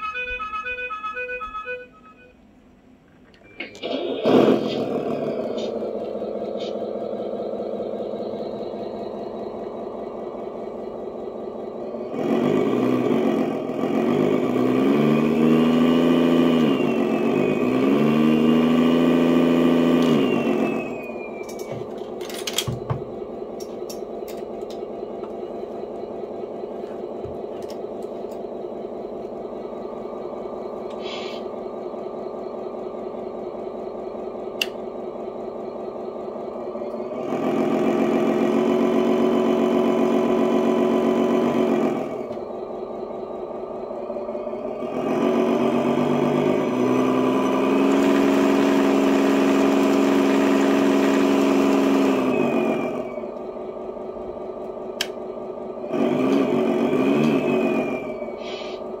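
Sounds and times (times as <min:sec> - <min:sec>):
clicks: 0:03.1 - 0:04.9, 0:34.5 - 0:34.8, 0:54.6 - 0:55.2
simulated truck engine revving: 0:03.6 - 0:59.0.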